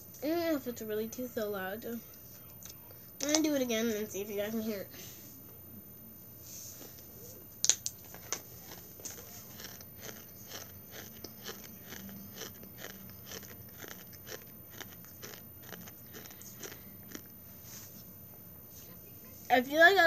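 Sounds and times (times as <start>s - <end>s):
person crunching food: 8.6s - 17.3s.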